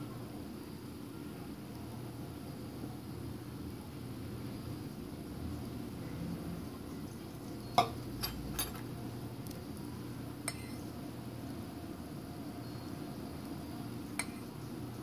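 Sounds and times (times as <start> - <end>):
spoon clinking metal and glass: 7.8 - 8.8.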